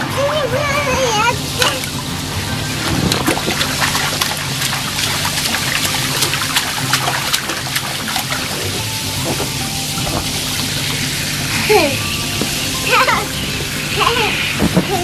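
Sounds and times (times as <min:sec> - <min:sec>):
baby slapping water: 0:01.0 - 0:12.0
hose spray hissing: 0:01.2 - 0:15.0.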